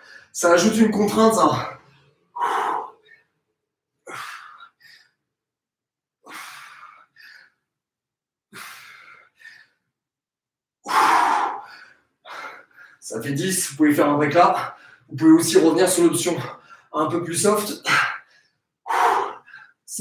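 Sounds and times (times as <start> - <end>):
man breathing out forcefully: 2.3 - 3.3, 4.0 - 5.1, 6.2 - 7.6, 8.5 - 9.8, 10.8 - 13.0, 18.3 - 19.8.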